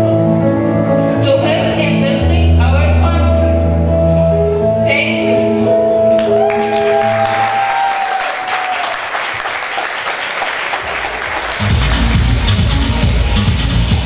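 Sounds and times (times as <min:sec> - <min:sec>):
audience applauding: 0:06.1 - 0:12.4
dance music with heavy beat: 0:11.4 - 0:14.0.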